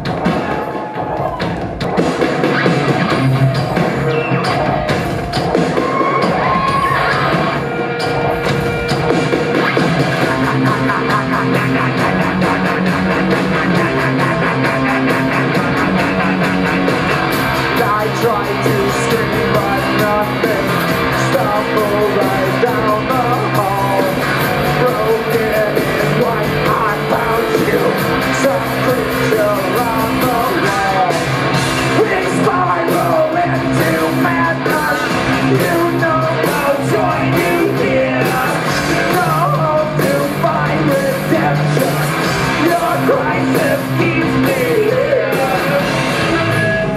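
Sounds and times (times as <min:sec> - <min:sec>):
live rock band playing: 0:00.0 - 0:46.9
person singing: 0:02.7 - 0:46.9.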